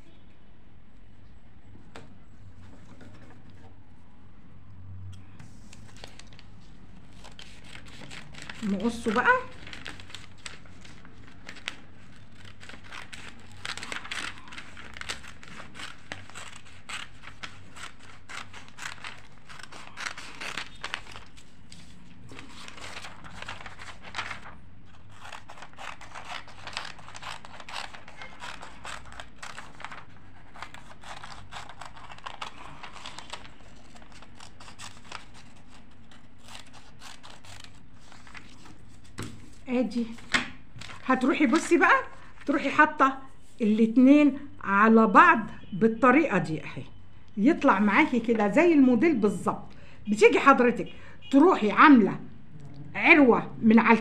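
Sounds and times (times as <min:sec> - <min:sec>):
paper rustling: 0:05.4 - 0:44.0
scissors snipping paper: 0:07.2 - 0:21.4, 0:25.0 - 0:38.7.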